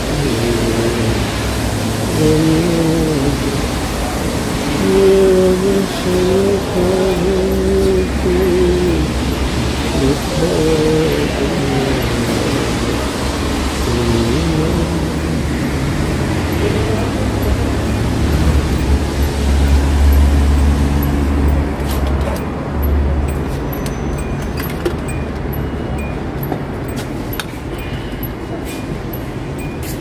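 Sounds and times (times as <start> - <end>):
car wash rushing noise: 0.0 - 25.8.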